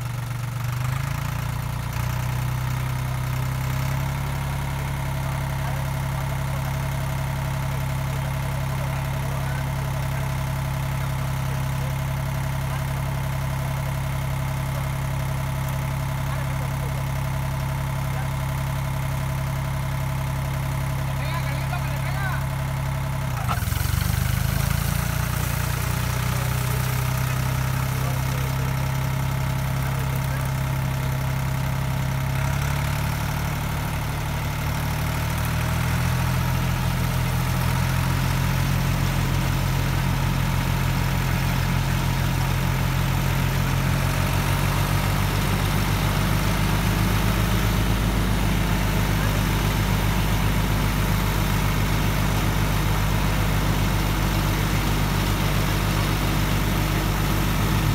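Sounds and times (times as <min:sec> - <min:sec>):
tractor diesel engine running: 0:00.0 - 0:57.9
rotary tiller through soil: 0:21.0 - 0:34.2, 0:34.8 - 0:57.9.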